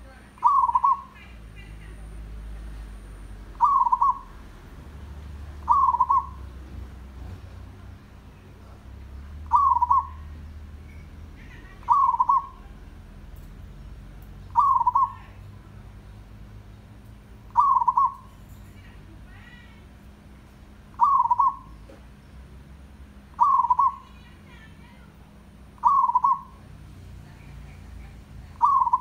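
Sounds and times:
dove cooing: 0.4 - 2.0, 3.5 - 4.4, 5.6 - 6.6, 9.4 - 10.3, 11.8 - 12.9, 14.5 - 15.4, 17.5 - 18.3, 20.9 - 22.0, 23.3 - 24.1, 25.8 - 26.6, 28.6 - 29.0.

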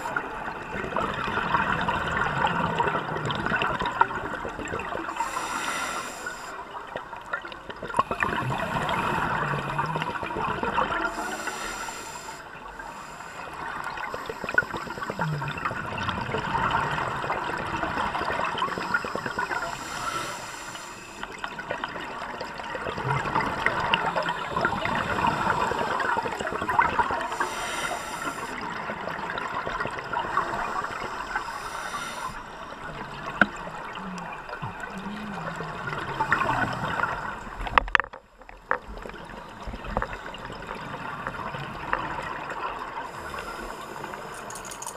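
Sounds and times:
exhaled air bubbling: 0.0 - 44.9
regulator hissing inhalations: 5.1 - 6.7, 11.1 - 15.2, 18.8 - 21.4, 27.2 - 28.7, 30.4 - 32.7.

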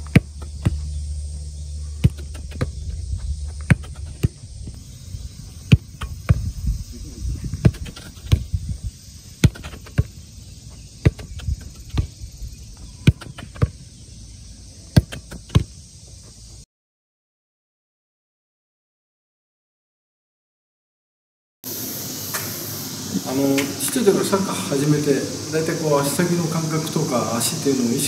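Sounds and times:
feet and ball thumping on turf: 0.0 - 12.2, 12.8 - 13.9, 14.9 - 16.4
high background hiss: 0.0 - 16.6, 21.7 - 28.0.

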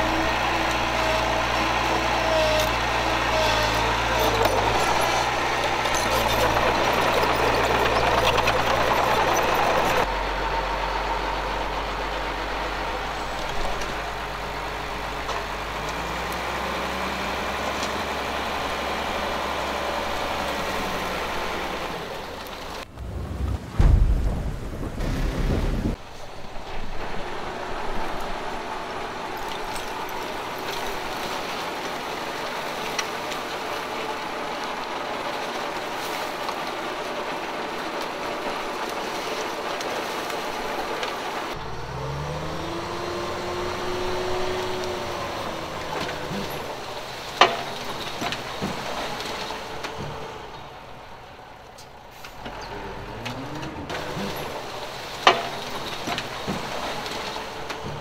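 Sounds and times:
heavy diesel machinery running: 0.0 - 23.6
engine revving: 41.6 - 46.8, 52.5 - 54.7.

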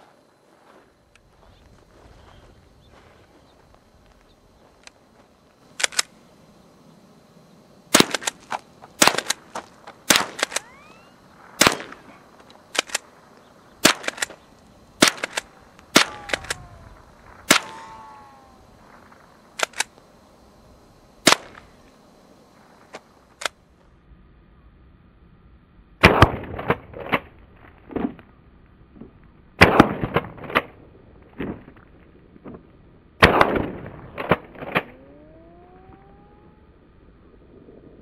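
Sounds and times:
rifle shots: 7.9 - 13.1, 13.8 - 16.7, 17.4 - 18.3, 21.2 - 21.6, 29.6 - 30.3, 33.2 - 35.0
bullet whine: 7.9 - 20.0, 33.2 - 36.9.

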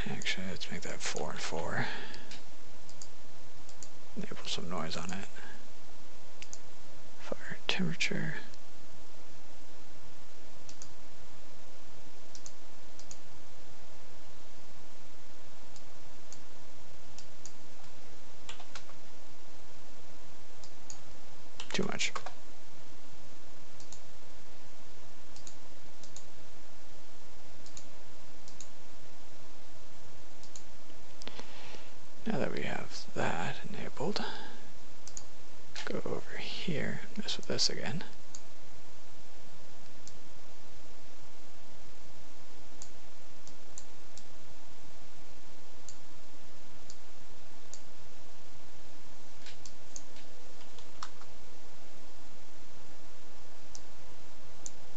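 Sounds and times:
computer mouse clicking: 2.1 - 4.0, 6.4 - 6.7, 10.6 - 11.0, 12.3 - 13.3, 17.1 - 19.0, 23.8 - 24.1, 25.3 - 26.3, 27.6 - 28.8, 30.4 - 31.4, 35.0 - 35.3, 49.4 - 51.3
steady hiss: 30.4 - 38.8.

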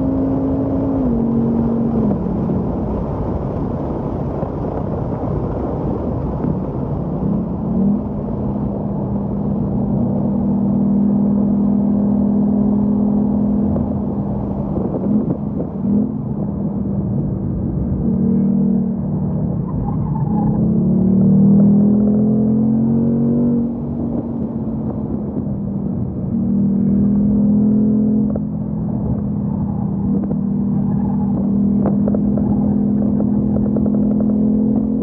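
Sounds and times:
car engine from inside cabin: 0.0 - 35.0.

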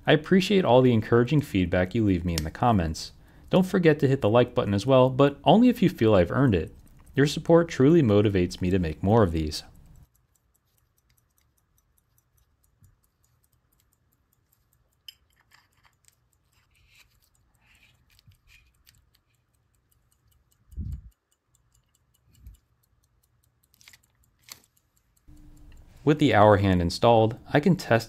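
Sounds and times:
pocket watch ticking: 0.2 - 28.0
fingers handling watch clicks: 5.8 - 26.0
dull low thumps: 20.7 - 21.1.

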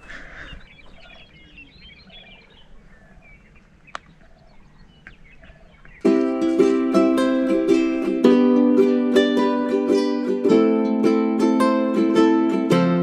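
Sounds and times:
lower bird call: 0.0 - 6.1
high bird chirps: 0.0 - 6.2.

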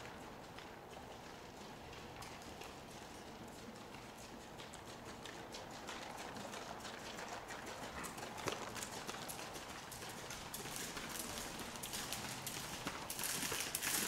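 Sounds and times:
horse hoofbeats on soft footing: 0.0 - 14.0.

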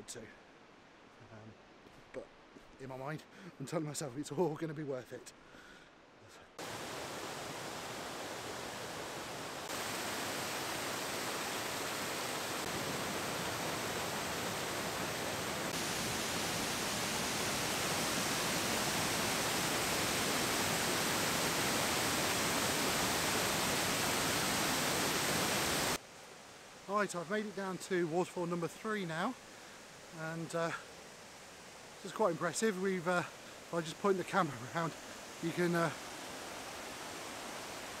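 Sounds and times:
waterfall rushing: 6.6 - 38.0.

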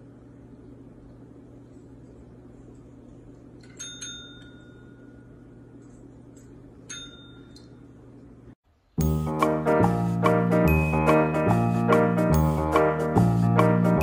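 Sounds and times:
faint steady hum: 0.0 - 9.0
desk service bell dinging: 3.7 - 5.2, 6.9 - 7.7.

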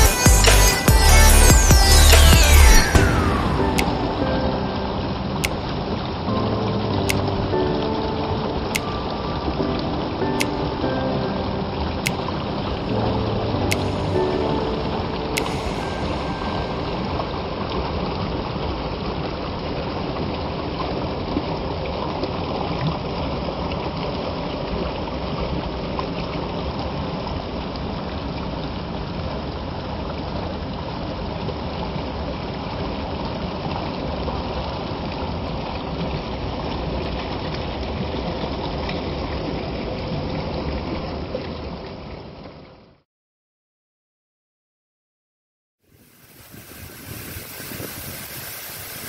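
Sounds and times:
stream rushing over rocks: 11.3 - 42.4, 45.9 - 49.0.

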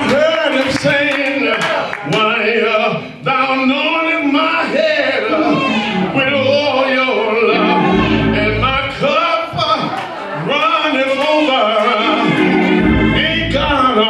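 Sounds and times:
man preaching in a chant: 2.9 - 12.2, 13.1 - 14.0.

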